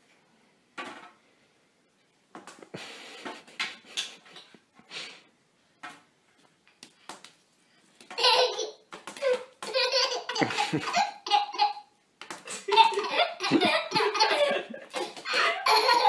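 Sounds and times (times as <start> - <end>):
baby laughing: 8.2 - 11.9, 12.5 - 16.0.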